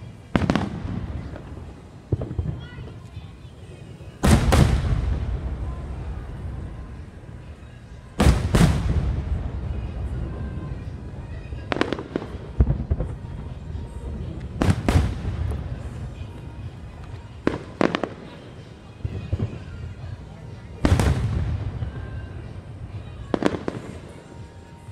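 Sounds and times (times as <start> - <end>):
fireworks booming: 0.0 - 7.1, 8.2 - 18.4, 20.8 - 24.2
low rumbling echo: 4.2 - 18.2.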